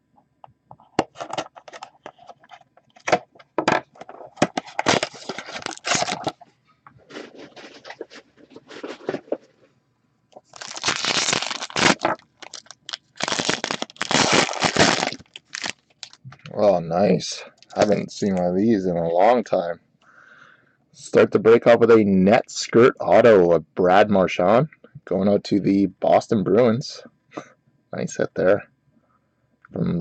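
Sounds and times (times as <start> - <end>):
wrapper crinkling and tearing: 4.6 - 6.4, 10.4 - 16.2.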